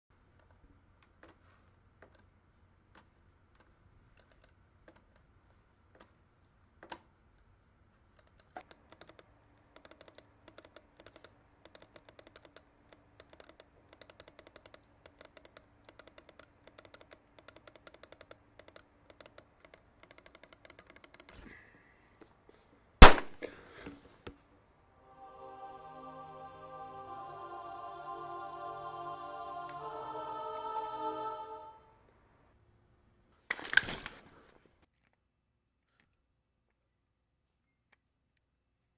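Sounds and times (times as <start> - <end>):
keyboard typing: 8.2 - 21.4.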